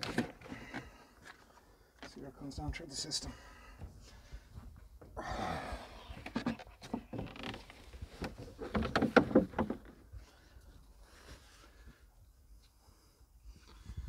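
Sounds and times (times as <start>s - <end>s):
plastic bottle and hose clicking: 6.2s - 9.9s.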